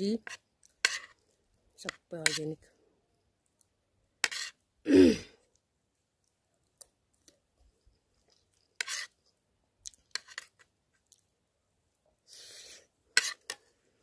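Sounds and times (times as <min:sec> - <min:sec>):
metal spoon scraping a plate: 0:00.2 - 0:01.2, 0:04.2 - 0:04.6, 0:08.8 - 0:09.2, 0:13.1 - 0:13.6
woman clearing her throat: 0:04.9 - 0:05.3.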